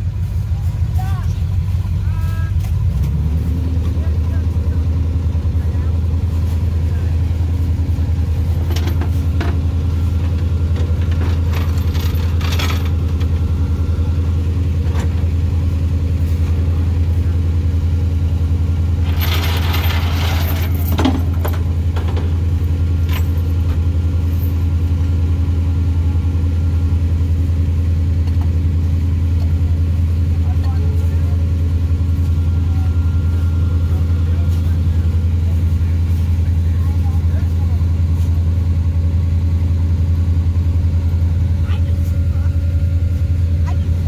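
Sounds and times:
truck engine idling: 0.0 - 44.0
rattling: 10.3 - 13.4, 19.0 - 24.7.

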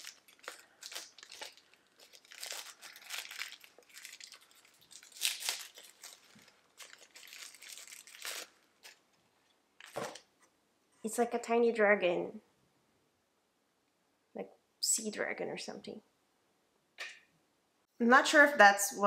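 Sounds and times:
toy and packaging crinkling: 0.0 - 10.3.

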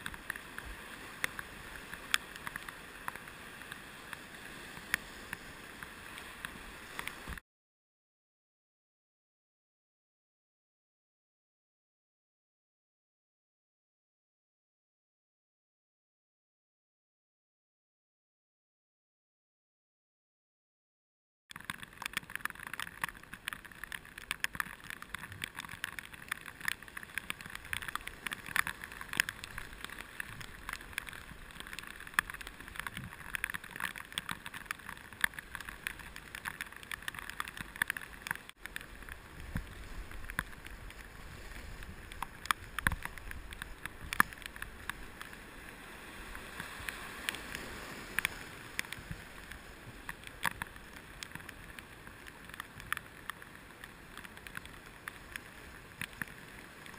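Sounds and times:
water splashes and ticks: 0.0 - 7.4, 21.5 - 56.9.

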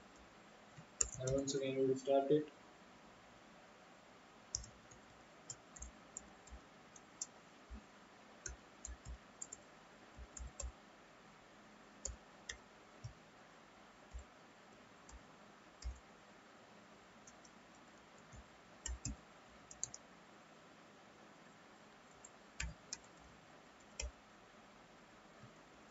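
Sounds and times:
low steady hiss: 0.0 - 25.9
keyboard key clicks: 1.0 - 1.4.

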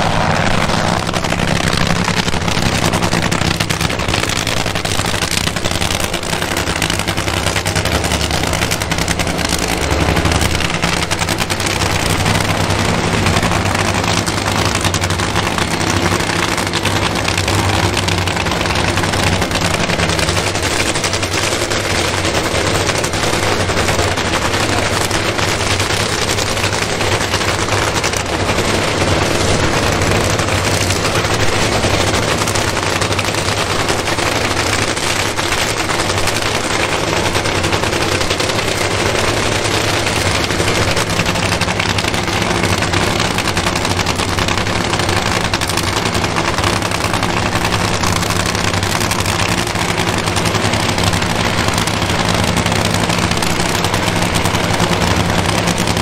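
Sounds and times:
drag racing engine idling: 0.0 - 56.0.

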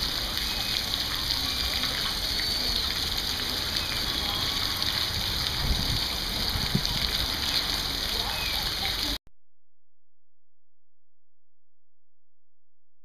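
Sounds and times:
fountain water splashing: 0.0 - 9.2.

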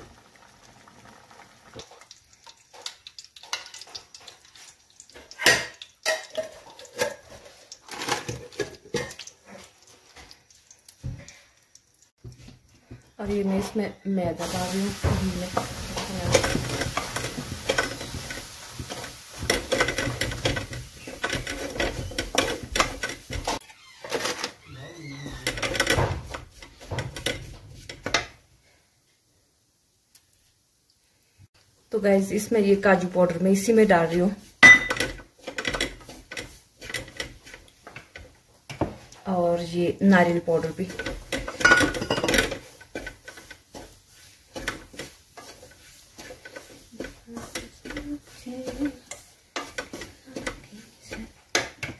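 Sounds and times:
spatula scraping metal pan: 13.8 - 24.5, 40.2 - 51.9.

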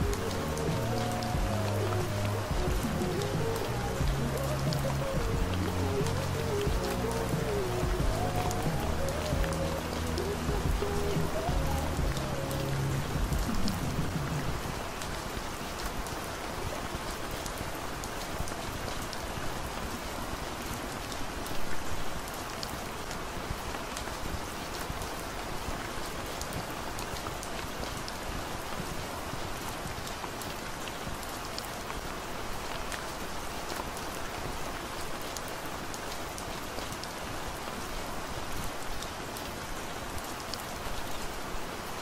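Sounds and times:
soft music: 0.0 - 15.8
raindrops ticking: 0.0 - 37.2
steady rain falling: 0.0 - 42.0.

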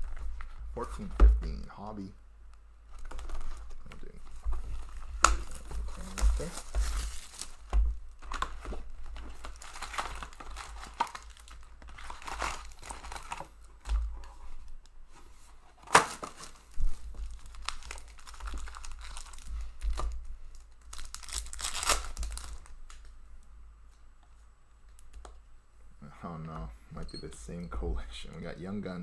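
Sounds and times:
wrapper tearing: 4.8 - 13.7, 15.8 - 23.1
foil packs crinkling: 4.8 - 13.8, 15.8 - 23.1.

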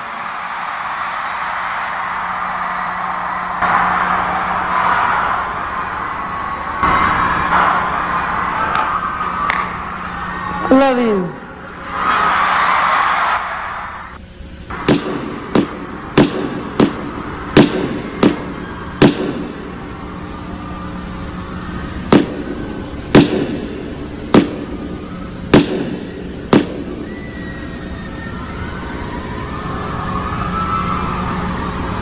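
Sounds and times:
crowd noise: 0.0 - 32.0
booming footsteps over sound system: 14.7 - 19.9, 22.0 - 27.7.

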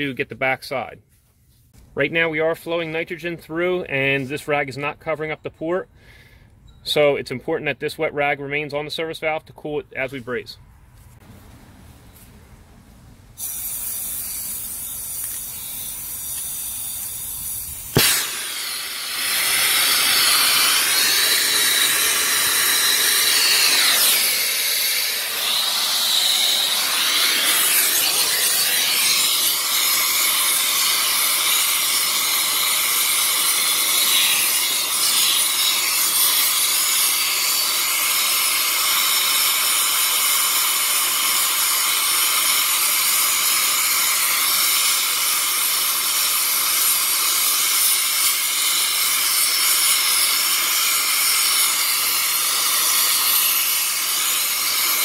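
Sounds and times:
torch flame hissing: 13.4 - 55.0.

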